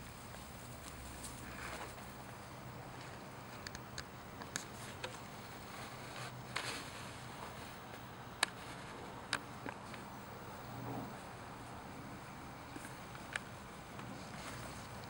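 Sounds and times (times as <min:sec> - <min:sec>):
puppies rustling in grass: 0:00.0 - 0:03.2
faint background hum: 0:00.0 - 0:15.0.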